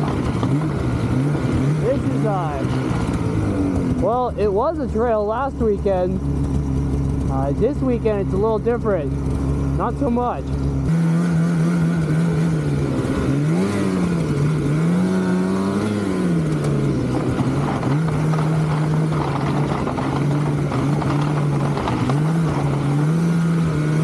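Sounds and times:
snowmobile engine under throttle: 0:00.0 - 0:24.0.

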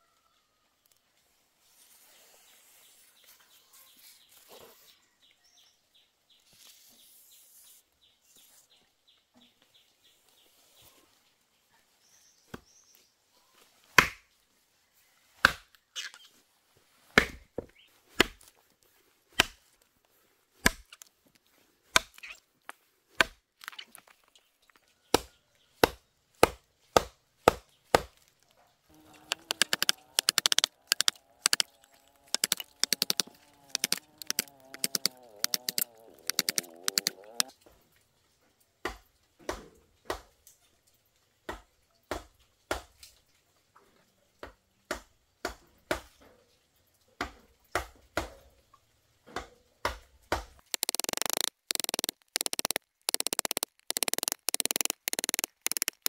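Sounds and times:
blade chopping wood: 0:17.2 - 0:17.4, 0:18.2 - 0:18.5, 0:19.4 - 0:19.6, 0:20.6 - 0:21.0, 0:21.9 - 0:22.2, 0:25.2 - 0:28.2, 0:29.2 - 0:31.7, 0:32.3 - 0:37.4.

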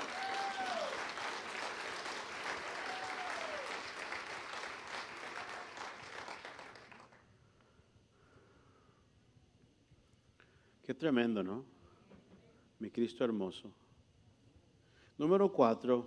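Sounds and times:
congregation applauding: 0:00.0 - 0:07.2.

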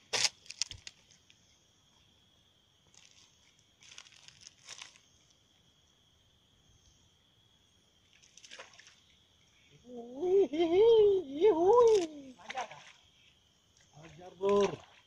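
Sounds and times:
dry crackling rustles: 0:00.0 - 0:01.4, 0:02.8 - 0:05.4, 0:11.8 - 0:12.5
insects droning: 0:00.0 - 0:15.0.

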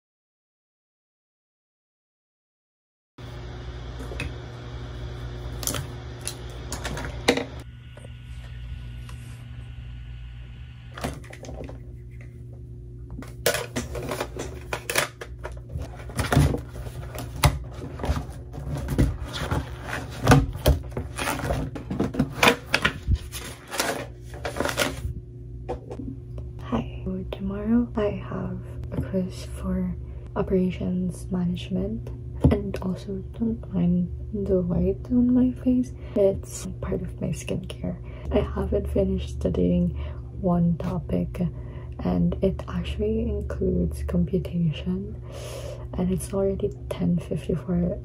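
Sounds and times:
steady low hum: 0:03.2 - 0:48.0
notebook pages flipping: 0:15.8 - 0:25.0.

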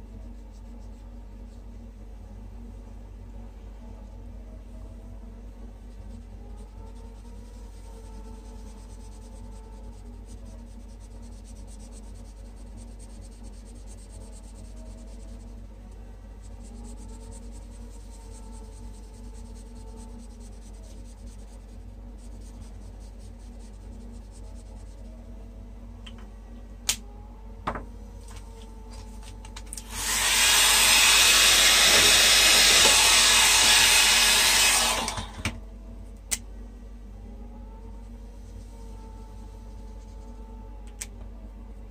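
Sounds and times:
hair dryer blowing: 0:29.8 - 0:35.6.

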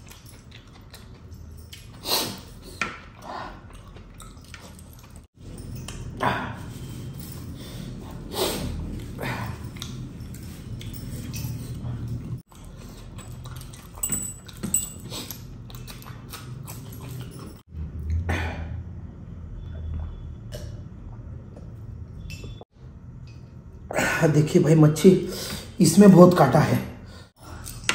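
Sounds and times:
man chewing and lip-smacking: 0:00.0 - 0:07.5, 0:08.8 - 0:18.3.

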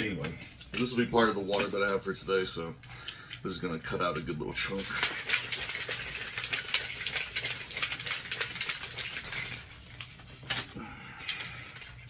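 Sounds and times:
plastic bottle shaken with liquid: 0:03.5 - 0:10.6.

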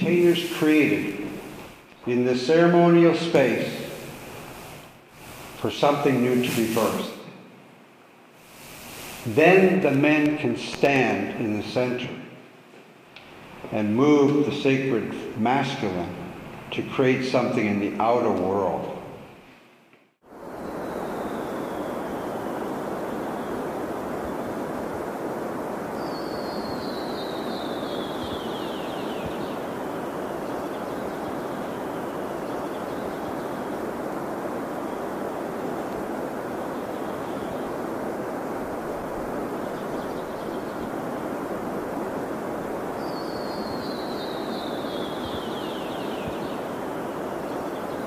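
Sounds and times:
steady rushing noise: 0:00.0 - 0:12.1, 0:20.2 - 0:48.0
songbird trilling: 0:26.0 - 0:33.8, 0:43.0 - 0:48.0.

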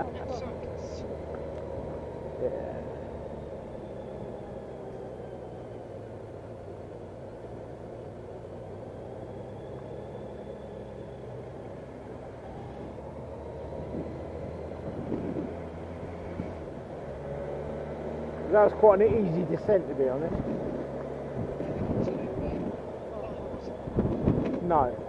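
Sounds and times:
road and wind noise: 0:00.0 - 0:25.0
motorcycle engine running: 0:18.2 - 0:25.0.

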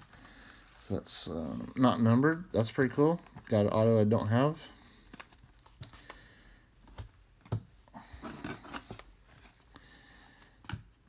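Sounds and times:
cards rustling and sliding: 0:04.9 - 0:11.0.

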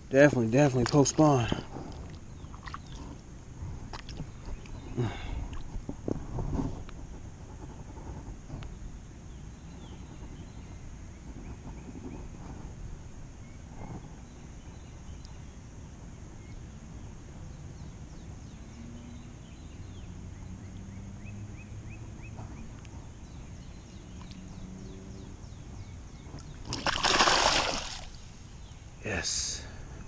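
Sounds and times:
low outdoor ambience: 0:00.0 - 0:30.0
fish splashing in water: 0:26.4 - 0:28.2.

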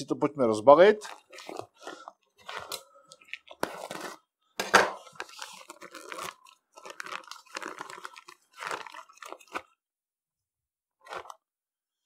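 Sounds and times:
plastic bag crinkling and tearing: 0:01.0 - 0:04.2, 0:04.9 - 0:09.8, 0:11.0 - 0:11.4.

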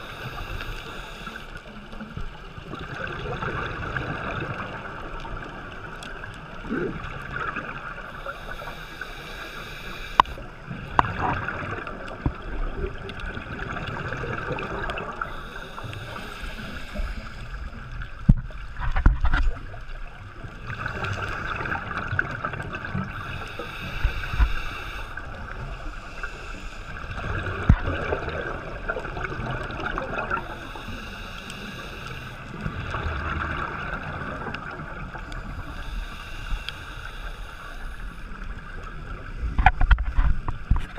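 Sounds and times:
bubbling exhalation underwater: 0:06.6 - 0:07.6
regulator hissing inhalation: 0:08.2 - 0:10.4, 0:15.2 - 0:17.6, 0:23.1 - 0:25.2, 0:30.5 - 0:32.4, 0:35.4 - 0:38.3.

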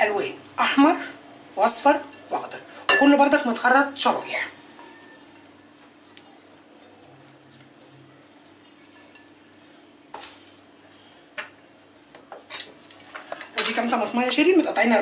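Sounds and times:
glass dishes clinking: 0:02.9 - 0:03.2, 0:06.4 - 0:09.4, 0:12.2 - 0:13.8.

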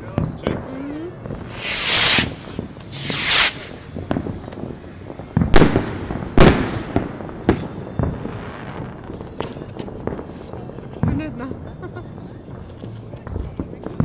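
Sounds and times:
loud firework bangs: 0:00.0 - 0:12.7
small firework cracks and pops: 0:00.0 - 0:14.0
firework hisses: 0:00.7 - 0:10.7.

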